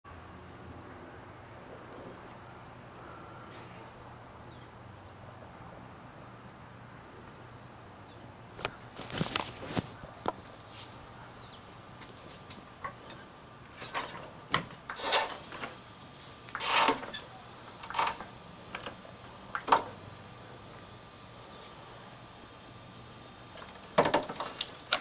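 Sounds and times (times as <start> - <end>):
floor jack creaking and knocking: 13.8 - 15.8, 16.5 - 17.2, 17.8 - 18.3.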